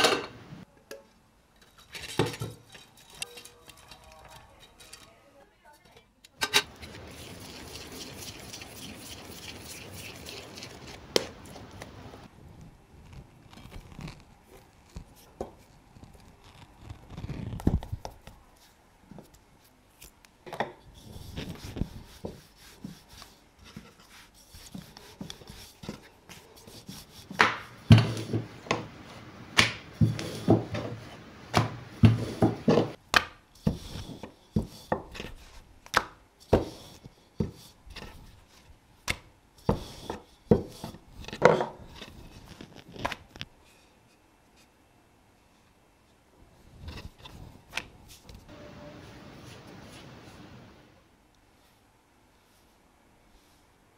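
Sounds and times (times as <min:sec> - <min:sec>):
steady soft hiss: 0:04.9 - 0:53.9
rolling pin rolling dough: 0:06.7 - 0:12.3, 0:21.0 - 0:33.0, 0:33.6 - 0:35.6, 0:36.4 - 0:43.2.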